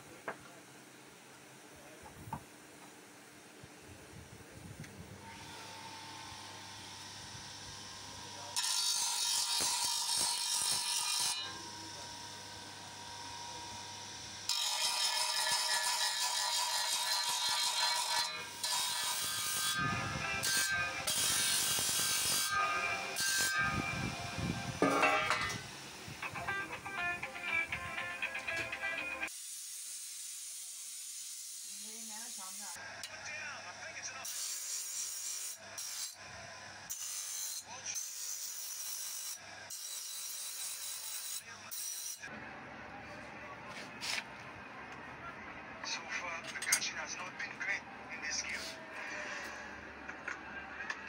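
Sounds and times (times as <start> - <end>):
grinding wheel grinding metal: 7.7 - 25.7
brass ground on abrasive disc: 24.8 - 25.7.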